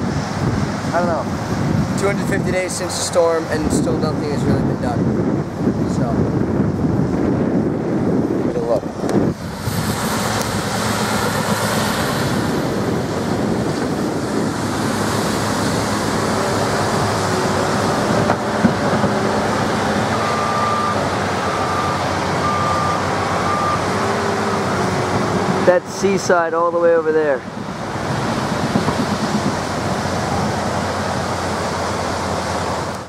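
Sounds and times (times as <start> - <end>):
heavy machinery running: 8.6 - 33.0
reversing alarm beeping: 20.1 - 24.7.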